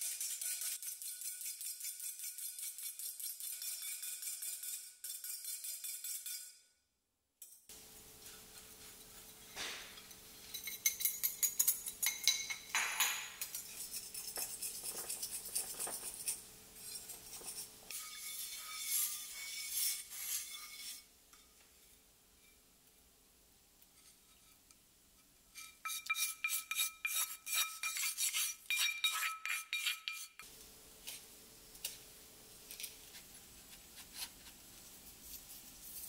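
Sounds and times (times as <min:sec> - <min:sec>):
whisk clinking against bowl: 0:08.2 - 0:19.7, 0:25.6 - 0:30.4
spoon clinking in frying pan: 0:10.0 - 0:13.6.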